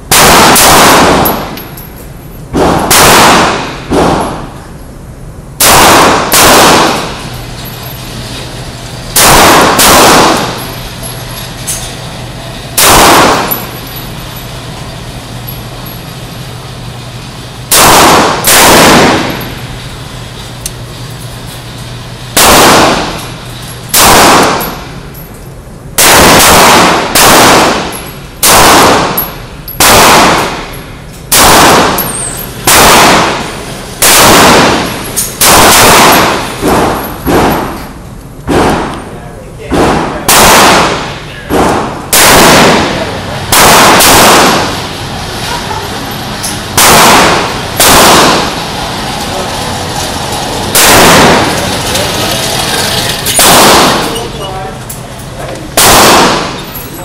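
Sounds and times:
low steady hum: 0:00.0 - 0:57.0
handgun shots echoing: 0:00.1 - 0:01.7, 0:02.6 - 0:04.5, 0:05.6 - 0:07.4, 0:09.2 - 0:10.7, 0:12.8 - 0:13.8, 0:17.7 - 0:19.6, 0:22.4 - 0:23.3, 0:23.9 - 0:24.9, 0:26.0 - 0:37.9, 0:39.7 - 0:44.8, 0:46.5 - 0:48.6, 0:50.7 - 0:52.1, 0:53.3 - 0:54.3, 0:55.7 - 0:56.8.

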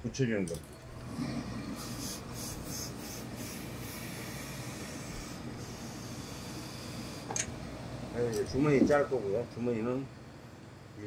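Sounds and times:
iron rubbing over cloth: 0:01.0 - 0:07.3.

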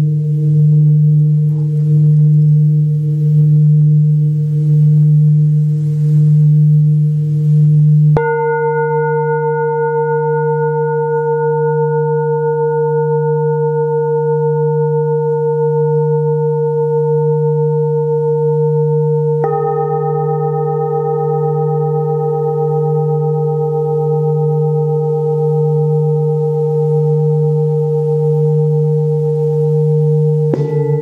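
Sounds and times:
singing bowls ringing: 0:00.0 - 0:31.0.

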